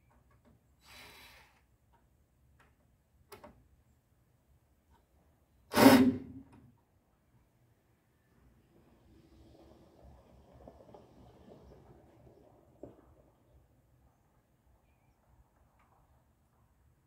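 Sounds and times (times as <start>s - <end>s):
faint hiss: 0.8s - 1.8s.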